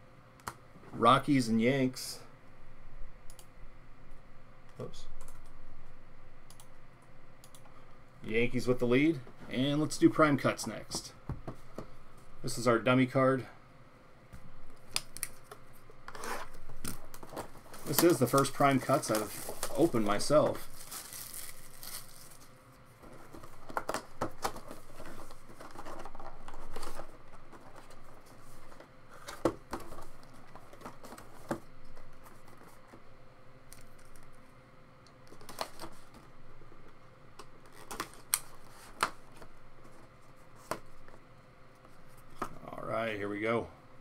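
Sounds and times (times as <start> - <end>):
cardboard and packaging rustling: 15.2 - 33.0, 35.3 - 36.9.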